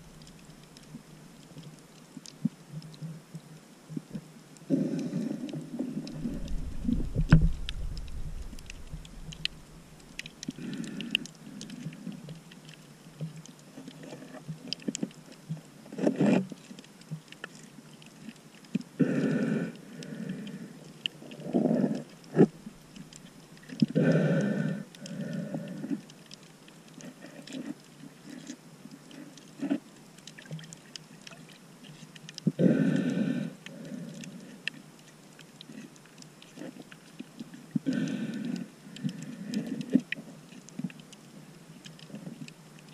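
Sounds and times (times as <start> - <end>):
low rumble: 6.1 - 10.3
breathing through a snorkel: 23.9 - 26.0, 32.6 - 34.6, 37.8 - 40.0.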